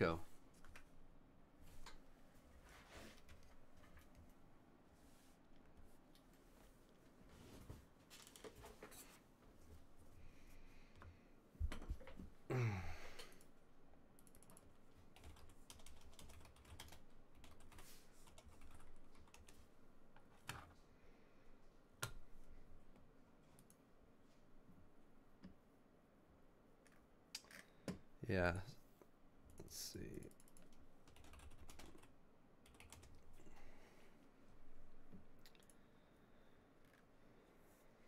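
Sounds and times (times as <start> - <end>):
typing on computer keyboard: 14.2 - 19.6, 29.5 - 33.3.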